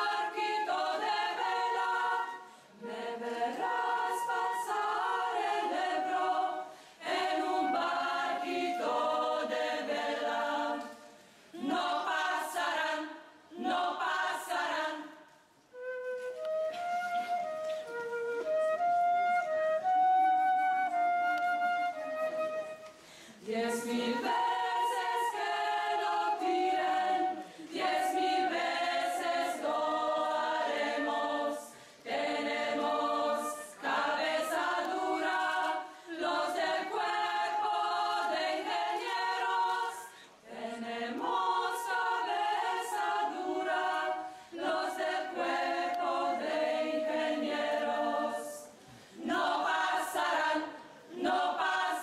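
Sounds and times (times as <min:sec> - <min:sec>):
choir singing a cappella: 0:00.0 - 0:15.6, 0:23.3 - 0:52.0
singers breathing: 0:06.7 - 0:07.0, 0:23.0 - 0:23.5, 0:40.1 - 0:40.5, 0:48.8 - 0:49.2.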